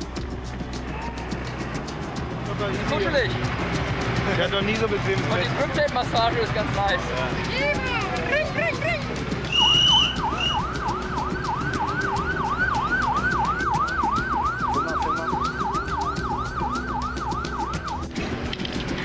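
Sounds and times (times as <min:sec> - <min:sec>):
traffic hum: 0:00.0 - 0:19.0
shrill whistle blasts: 0:09.5 - 0:10.8
police siren yelping: 0:09.5 - 0:18.1.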